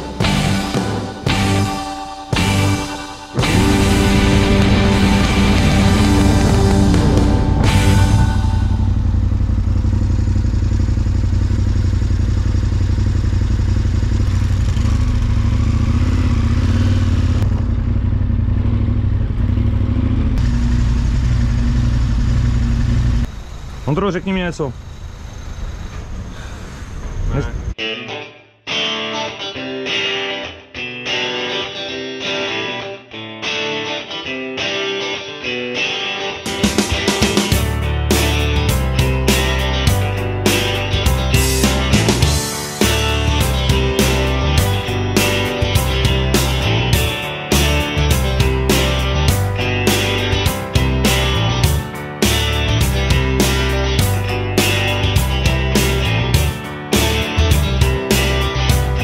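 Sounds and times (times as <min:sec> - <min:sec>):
guitar chords: 0:00.0 - 0:12.6, 0:27.8 - 0:59.0
motorcycle engine idling and revving: 0:02.4 - 0:27.8, 0:36.7 - 0:59.0.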